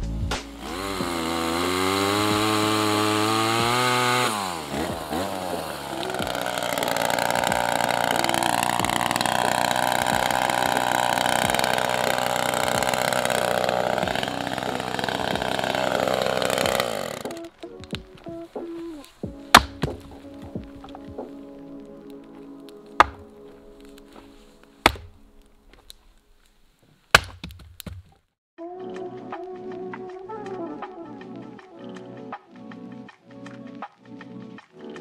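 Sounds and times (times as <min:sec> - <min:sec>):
chainsaw revving: 0:00.5 - 0:17.6, 0:19.6 - 0:20.0, 0:23.0 - 0:23.4.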